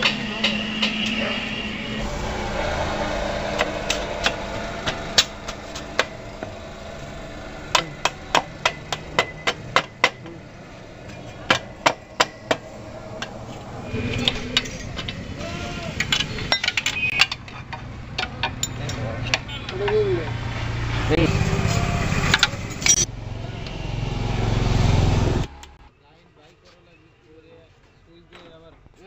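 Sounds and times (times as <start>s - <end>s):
hammer tapping on metal: 7.7s - 10.4s.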